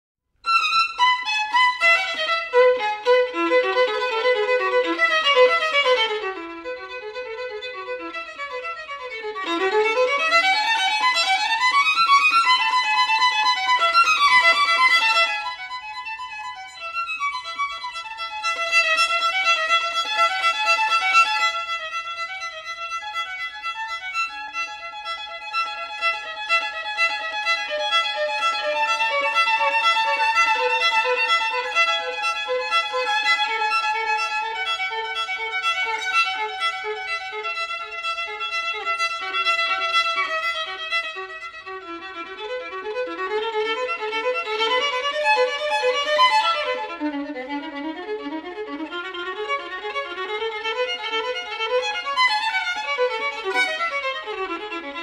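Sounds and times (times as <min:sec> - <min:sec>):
violin music: 0:00.4 - 0:55.0.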